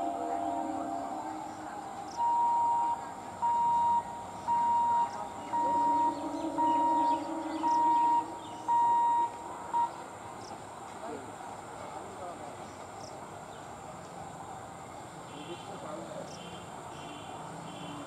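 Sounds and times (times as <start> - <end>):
level crossing warning beeps: 0.0 - 10.0.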